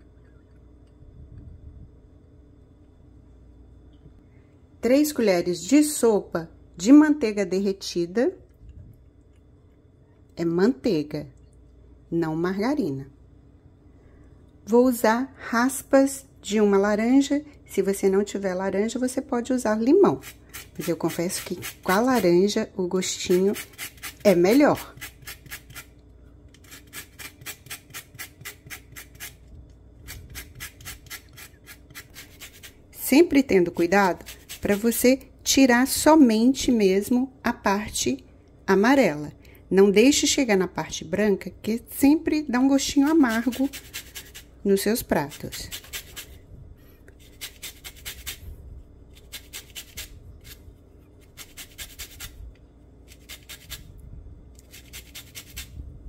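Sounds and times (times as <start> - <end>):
peel scraping on metal grater: 20.2 - 22.4, 23.2 - 25.9, 26.5 - 29.4, 30.0 - 32.8, 33.9 - 35.0, 43.2 - 44.5, 47.2 - 48.4, 49.2 - 50.6, 51.2 - 52.3, 53.1 - 53.8, 54.6 - 55.7.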